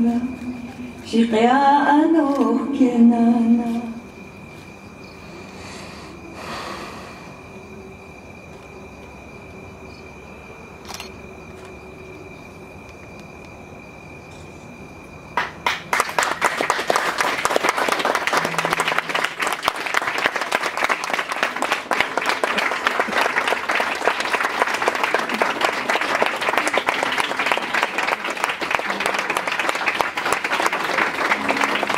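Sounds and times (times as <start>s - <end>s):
audience applauding: 15.4s - 31.9s.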